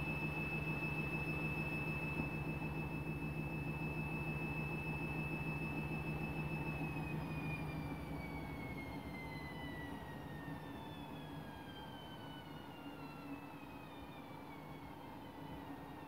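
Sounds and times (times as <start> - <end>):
washing machine spinning: 0.0 - 12.3.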